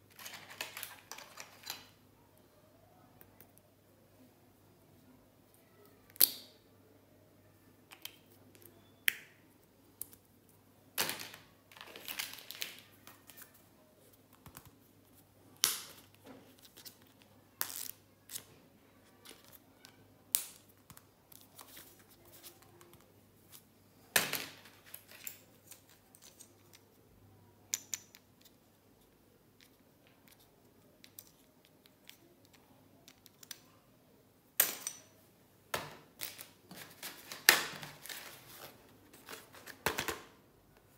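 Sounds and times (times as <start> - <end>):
plastic rustling: 36.1 - 40.3.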